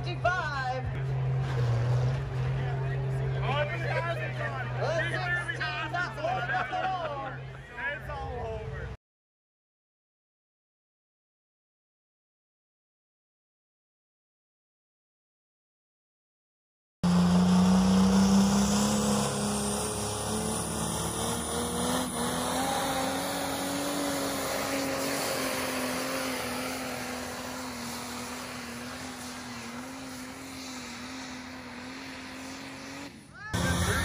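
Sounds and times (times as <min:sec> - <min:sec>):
vehicle engine running: 0:00.0 - 0:08.9, 0:17.0 - 0:34.0.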